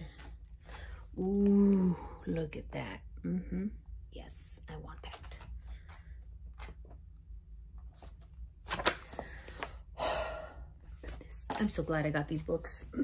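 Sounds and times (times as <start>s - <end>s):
book pages turning: 7.8s - 9.8s.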